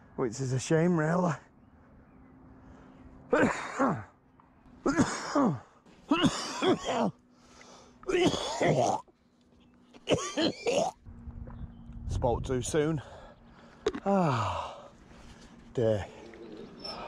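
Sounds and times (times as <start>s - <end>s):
man coughing hard: 3.3s - 4.1s, 4.9s - 7.2s, 8.1s - 9.1s, 10.0s - 11.0s.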